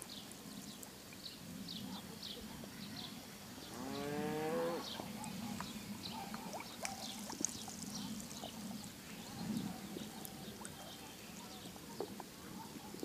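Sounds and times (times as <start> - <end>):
small birds chirping: 0.0 - 13.0
cow mooing: 3.8 - 4.9.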